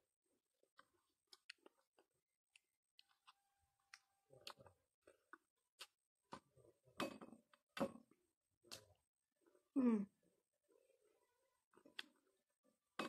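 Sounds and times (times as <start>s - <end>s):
chewing and lip smacks: 0.7s - 6.0s.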